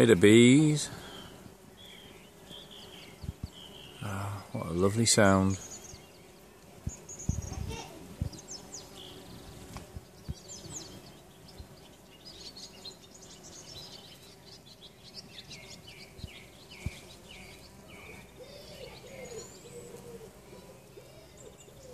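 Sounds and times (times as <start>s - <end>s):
bumblebees buzzing: 0.0s - 21.9s
songbirds chirping: 0.0s - 21.9s
low cooing calls: 16.8s - 21.9s.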